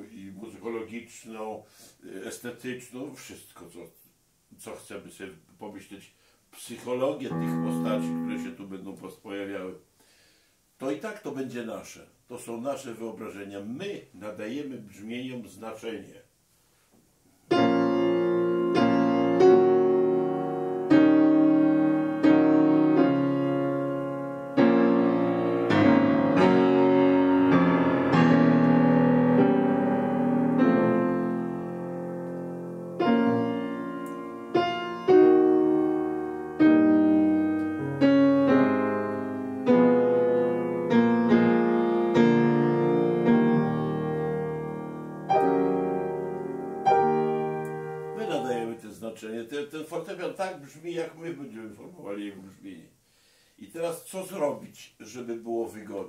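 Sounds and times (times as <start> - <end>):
acoustic piano chords: 7.3 - 8.6, 17.5 - 48.9.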